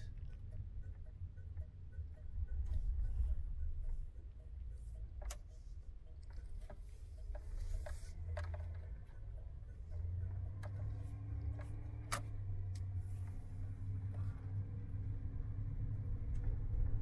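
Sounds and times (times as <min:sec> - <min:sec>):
vehicle road and engine rumble: 0:00.0 - 0:17.0
small clicks and rattles: 0:06.2 - 0:09.3.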